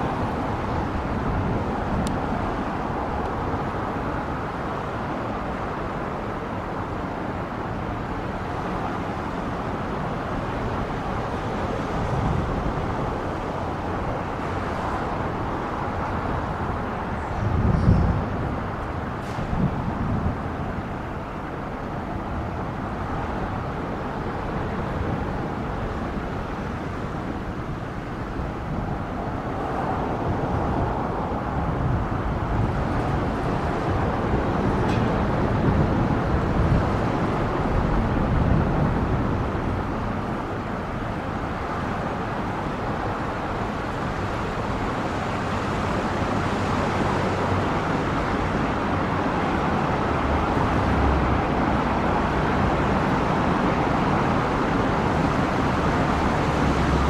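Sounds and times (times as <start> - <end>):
traffic hum: 0.0 - 57.0
car passing close by: 49.5 - 57.0.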